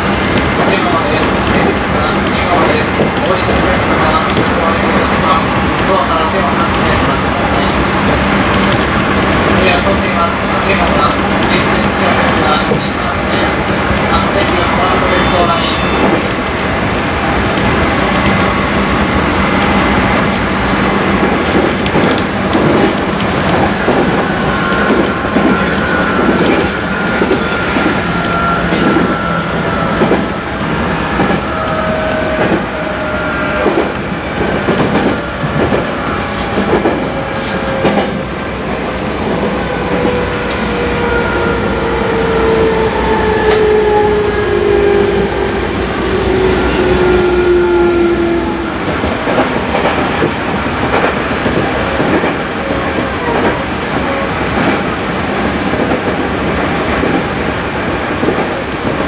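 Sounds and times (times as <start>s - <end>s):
train wheels clacking over rails: 19.6s - 59.0s
falling pitch train tone: 24.1s - 33.9s, 35.2s - 49.0s.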